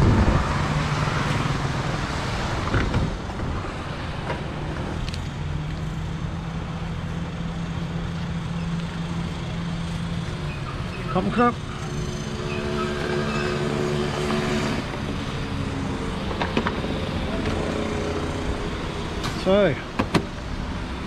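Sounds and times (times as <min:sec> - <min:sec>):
wind rushing on microphone: 0:00.0 - 0:04.0.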